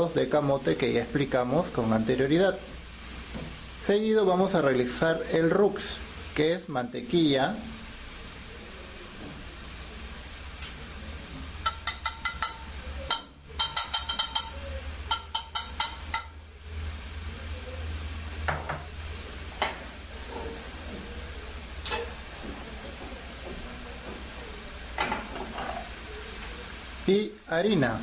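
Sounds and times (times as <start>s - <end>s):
utensil knocking on pan: 11.3s - 16.4s, 18.5s - 18.9s.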